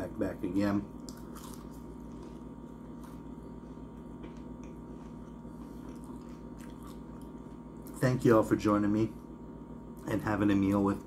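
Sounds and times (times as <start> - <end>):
low electrical hum: 0.0 - 11.0
onion ring being chewed: 1.0 - 8.0.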